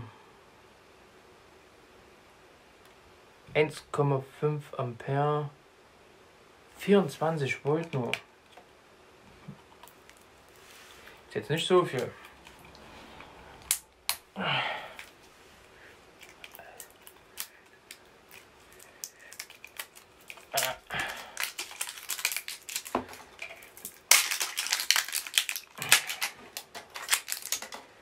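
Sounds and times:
plastic packaging crinkling: 0:15.0 - 0:28.0.

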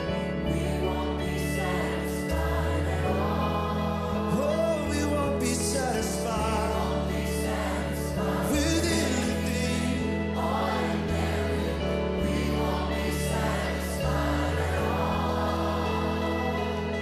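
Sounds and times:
many voices singing: 0:00.0 - 0:17.0
worship band playing: 0:00.0 - 0:17.0.

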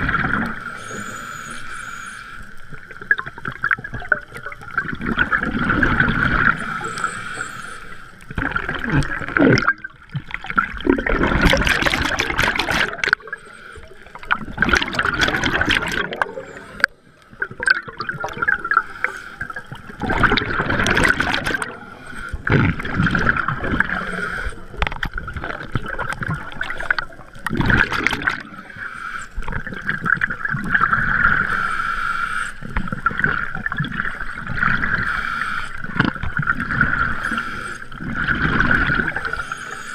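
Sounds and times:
exhaled bubbles gurgling underwater: 0:00.0 - 0:39.9.

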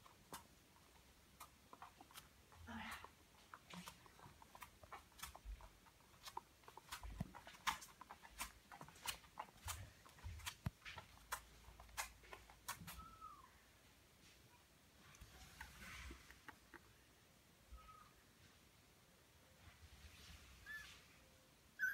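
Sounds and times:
kitten claws ticking on hard floor: 0:00.0 - 0:13.1.

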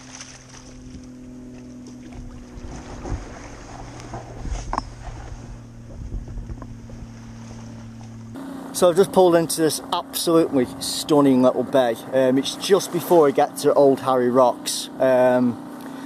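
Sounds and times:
kayak hull scraping over wet sand: 0:00.0 - 0:08.3
steady low hum: 0:00.0 - 0:16.0.

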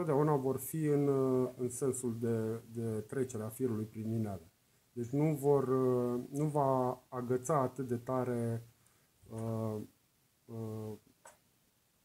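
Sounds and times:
man making hesitation sounds: 0:09.3 - 0:09.9.

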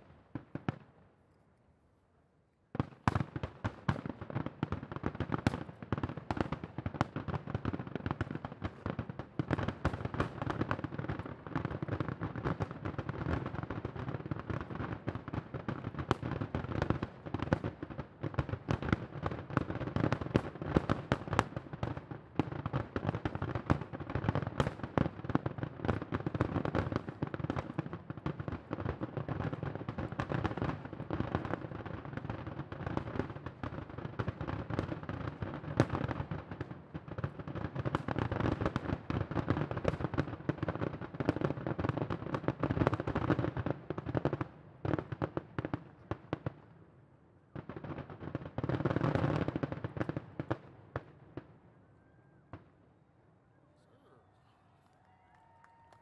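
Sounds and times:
fireworks bursting and popping: 0:02.7 - 0:44.4.

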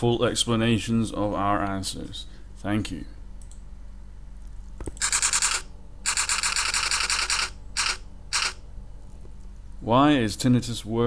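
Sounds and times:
typewriter clicking: 0:04.9 - 0:08.6.

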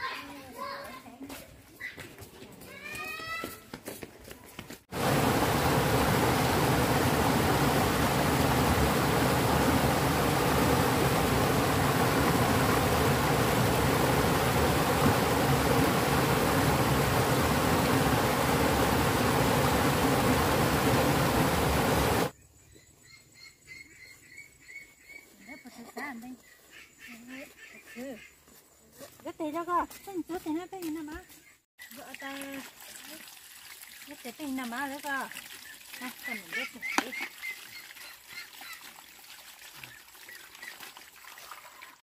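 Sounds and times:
loud steady rushing noise: 0:05.0 - 0:22.3.

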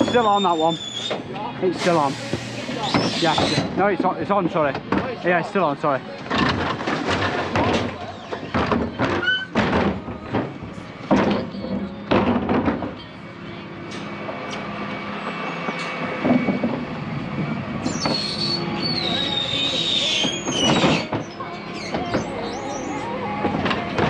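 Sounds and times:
high squeal: 0:00.0 - 0:01.2, 0:01.8 - 0:03.7, 0:15.1 - 0:16.6, 0:17.8 - 0:23.1
refuse truck running: 0:00.0 - 0:24.0
bin banging against hopper: 0:06.3 - 0:13.0.

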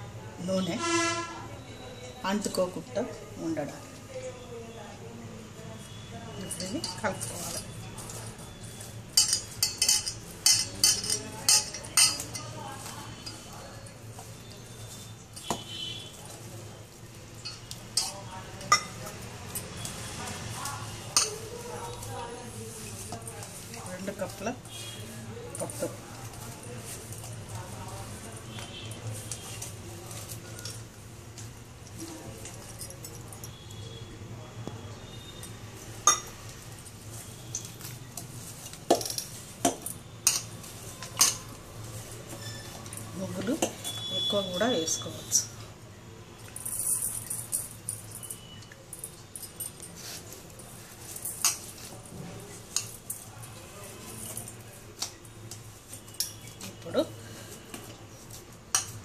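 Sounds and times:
hands kneading dough in a bowl: 0:05.7 - 0:33.6, 0:34.7 - 0:45.4, 0:48.8 - 0:59.0
metallic clinks of steel bowl: 0:09.2 - 0:12.5.

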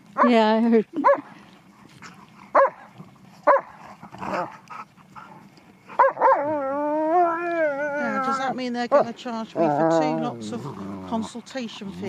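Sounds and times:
dogs barking: 0:00.2 - 0:00.4, 0:01.0 - 0:01.3, 0:02.4 - 0:05.2, 0:05.9 - 0:06.6, 0:08.9 - 0:10.0
dog howling: 0:06.0 - 0:08.5.

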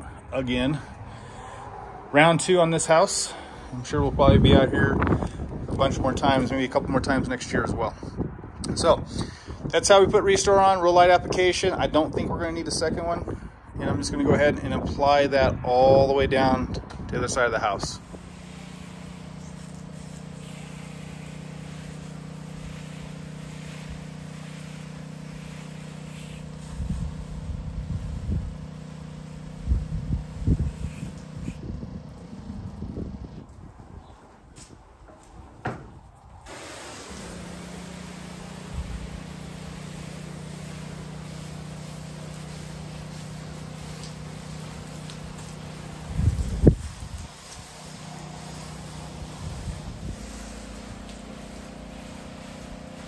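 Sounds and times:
faint hiss of spray: 0:18.0 - 0:32.4, 0:36.5 - 0:53.0
pump running with a steady hum: 0:18.0 - 0:33.4, 0:36.4 - 0:53.0.

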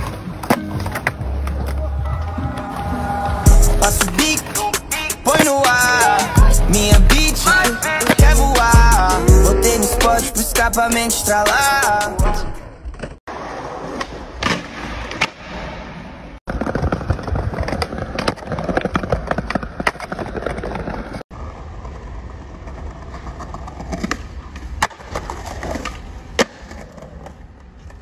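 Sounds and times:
skateboard wheels rolling on concrete: 0:00.0 - 0:28.0
skateboard clacks: 0:04.0 - 0:06.4, 0:16.5 - 0:28.0.

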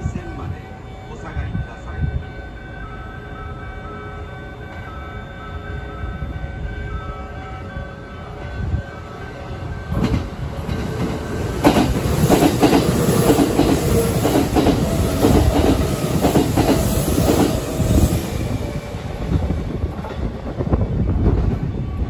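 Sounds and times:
train wheels clacking over joints: 0:09.9 - 0:18.0.

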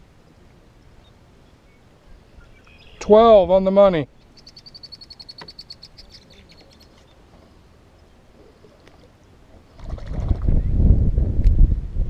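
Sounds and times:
wind buffeting microphone: 0:09.8 - 0:12.0.

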